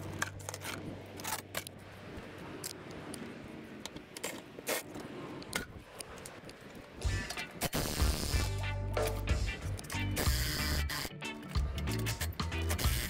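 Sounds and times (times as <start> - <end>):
cordless ratchet: 11.7 - 13.0.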